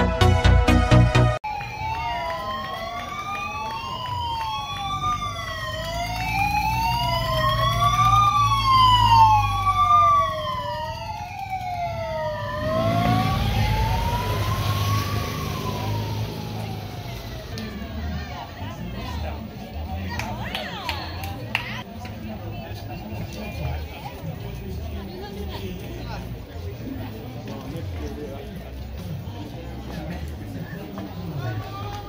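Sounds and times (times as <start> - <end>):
motor engine rumbling: 0.0 - 20.0
motorcycle siren wailing: 1.4 - 18.1.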